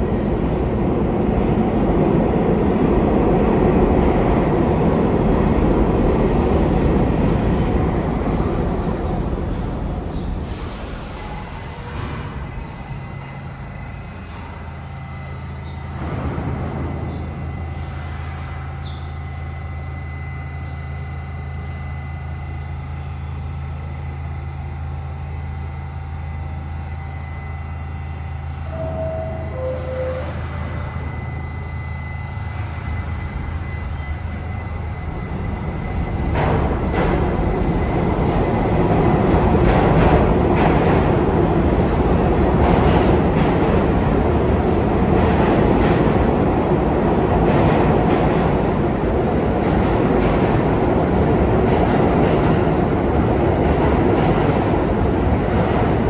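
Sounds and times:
train electrical hum: 0.0s - 56.0s
train rumble and wheel clatter: 0.0s - 56.0s.

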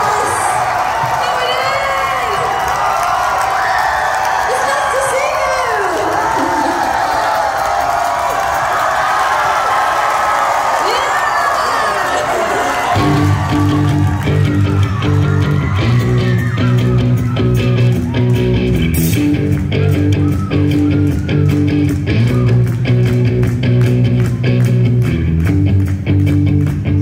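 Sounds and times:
steady drumbeat: 12.9s - 27.0s
bass guitar: 13.0s - 27.0s
electric guitar: 13.0s - 27.0s.

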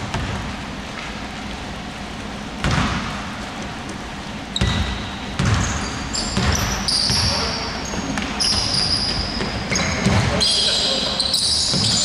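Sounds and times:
basketball bouncing on hardwood floor: 0.0s - 0.4s, 2.6s - 3.2s, 4.6s - 7.4s, 8.2s - 10.4s, 11.6s - 12.0s
high squeaks: 4.6s - 12.0s.

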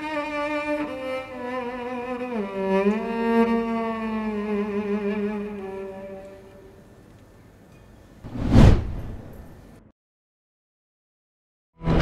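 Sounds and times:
cello and violin music: 0.0s - 6.7s.

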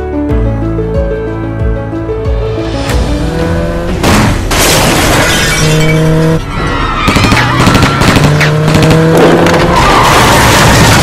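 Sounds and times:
crash with shattering glass: 4.0s - 5.9s, 9.8s - 11.0s.

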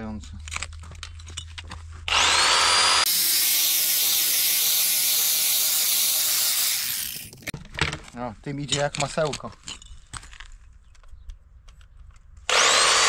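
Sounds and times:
power tool cutting concrete block: 2.1s - 7.5s, 12.5s - 13.0s.

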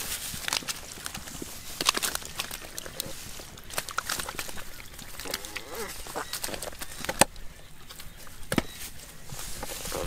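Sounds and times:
fish slapping and splashing: 0.0s - 7.3s
wet squelches in mud: 0.0s - 10.0s.

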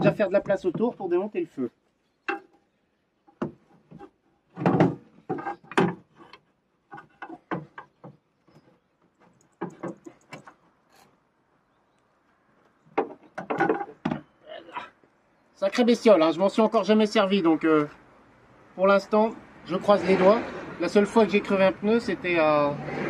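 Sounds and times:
metal and plastic knocks and rattles: 3.3s - 10.8s, 12.9s - 14.3s.

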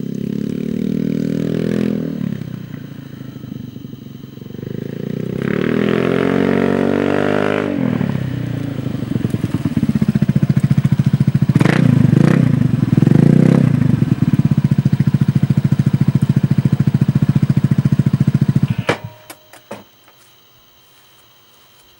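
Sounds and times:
scooter engine idling loudly: 7.7s - 19.2s.

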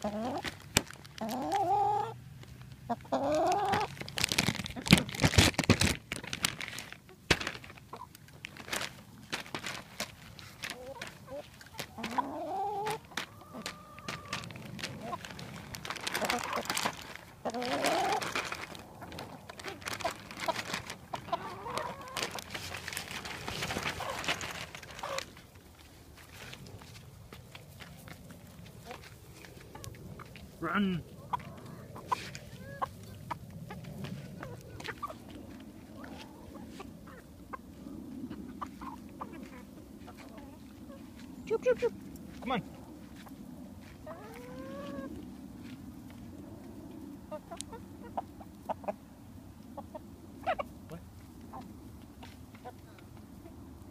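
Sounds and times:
hens squawking: 0.0s - 0.5s, 1.2s - 2.2s, 2.8s - 4.0s, 10.5s - 25.5s, 28.4s - 42.5s, 44.0s - 45.2s, 47.1s - 53.6s
plastic bag crinkling: 0.3s - 1.6s, 3.3s - 12.1s, 12.8s - 25.6s
rustling: 2.4s - 30.6s.

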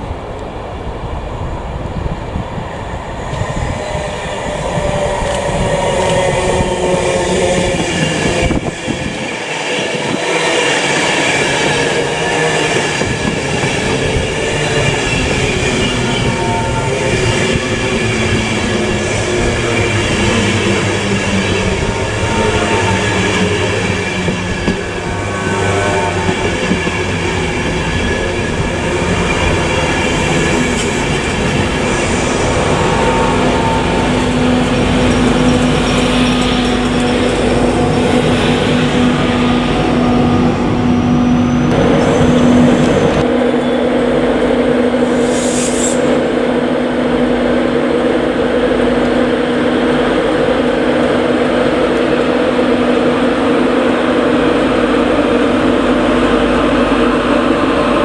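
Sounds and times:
electric locomotive humming: 0.0s - 58.0s.

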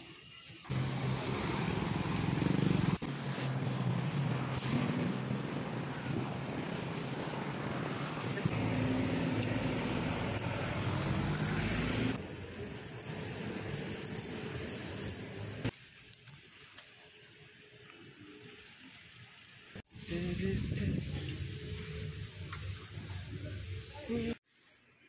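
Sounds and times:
street ambience: 0.0s - 24.4s
truck engine passing: 0.7s - 12.2s.

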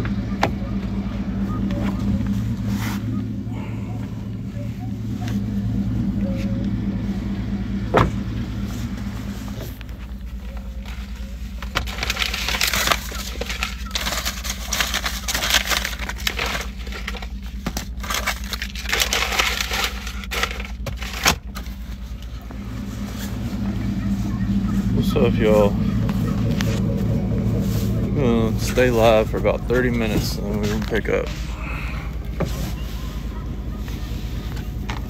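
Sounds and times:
truck engine idling: 0.0s - 35.0s.

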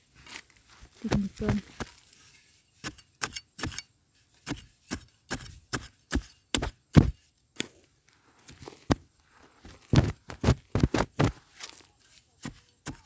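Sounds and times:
iron blade chopping into stony soil: 2.8s - 7.7s, 10.0s - 13.0s.

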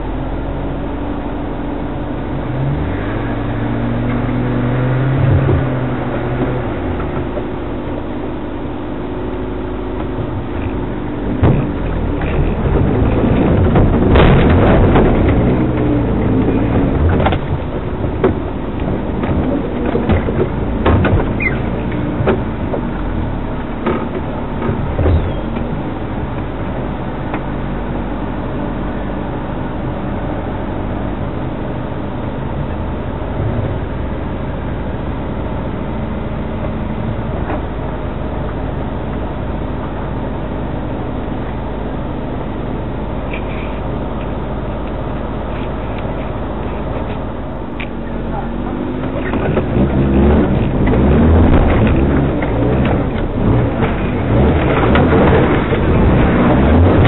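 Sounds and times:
off-road vehicle engine: 0.0s - 57.0s
vehicle knocks and rattles: 9.8s - 28.1s, 43.2s - 57.0s.

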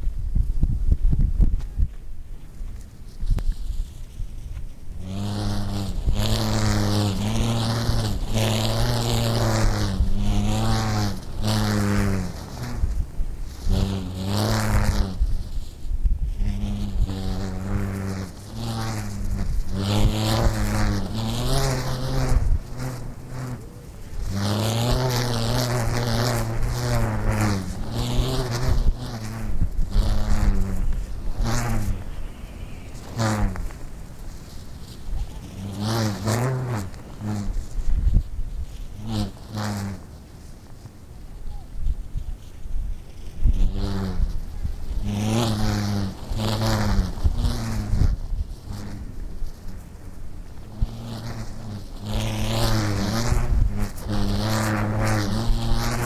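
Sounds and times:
stunt kite buzzing: 0.0s - 56.0s.

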